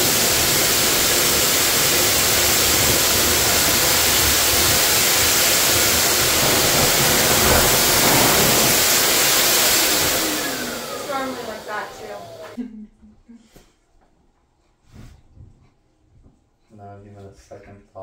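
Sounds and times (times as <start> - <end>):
pet grooming dryer blowing air: 0.0 - 12.6.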